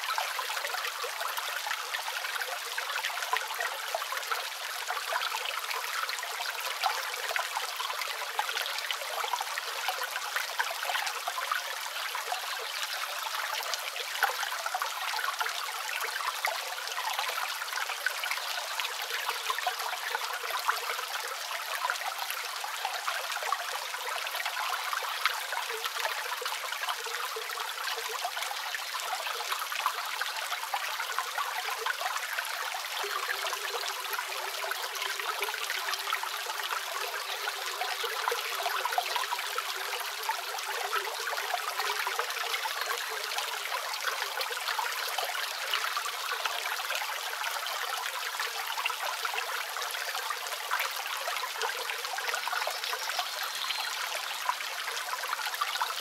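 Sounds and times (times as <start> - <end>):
water trickling and splashing: 0.0 - 56.0.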